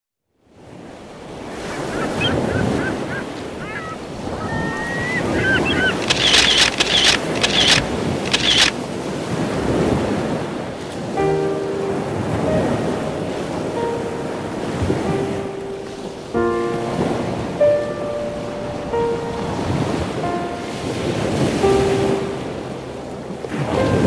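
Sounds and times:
surf breaking on shore: 0.7 - 24.0
birds chirping: 1.7 - 8.7
loud harsh bird calls: 1.8 - 8.7.

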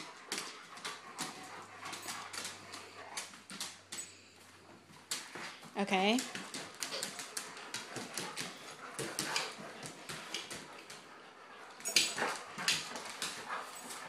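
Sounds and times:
claws clicking on wooden floor: 5.0 - 14.0.

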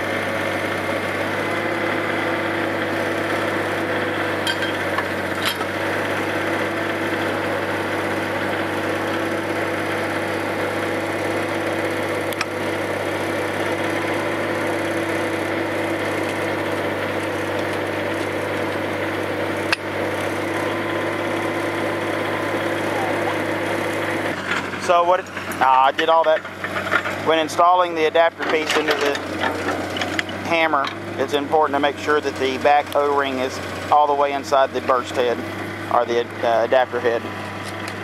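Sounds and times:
engine humming steadily: 0.0 - 38.0.

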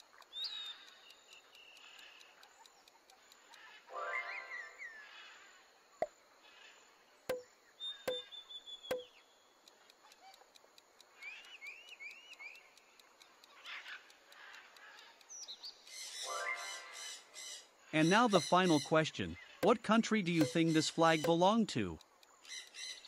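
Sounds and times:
sharp knocks: 20.4 - 20.6.

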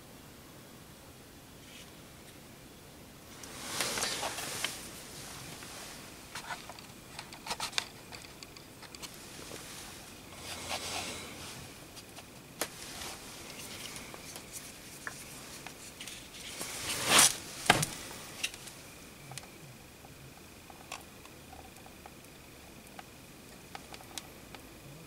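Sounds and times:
short rustle: 3.4 - 7.8, 9.0 - 18.8.

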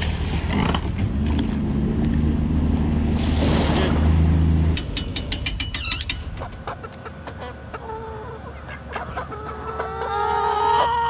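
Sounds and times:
chickens clucking: 5.5 - 11.0.

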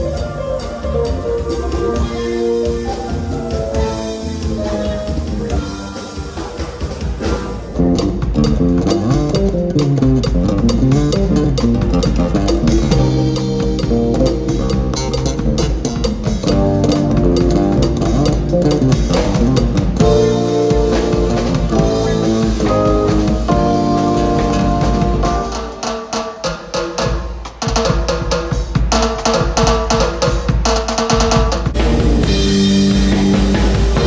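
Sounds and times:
electric bass guitar: 0.0 - 25.7, 31.8 - 34.0
keyboard: 0.0 - 26.4
drum kit beat: 0.0 - 34.0.

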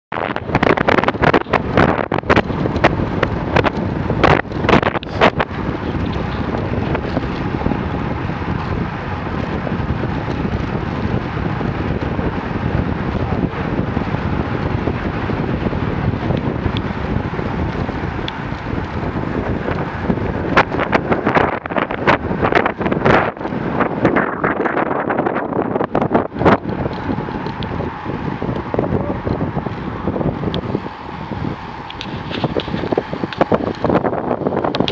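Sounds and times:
bicycle tyre and road noise: 0.1 - 34.9
wind buffeting microphone: 0.1 - 34.9.

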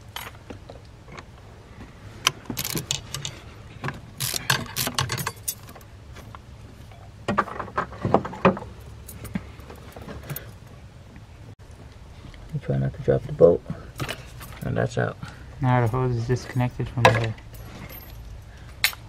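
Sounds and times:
hand ratchet clicking: 2.6 - 3.4, 4.2 - 5.6
metal tool clinks: 4.2 - 5.8, 15.8 - 19.0.

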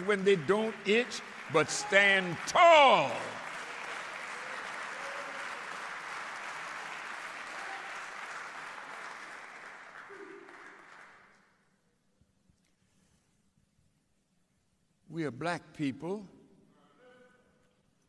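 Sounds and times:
audience applause: 0.0 - 11.3.

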